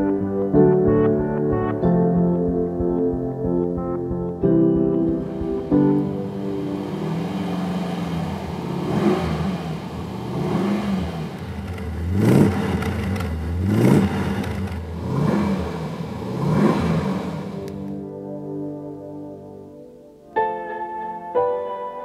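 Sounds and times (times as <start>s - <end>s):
car engine revving: 5.1s - 18.0s.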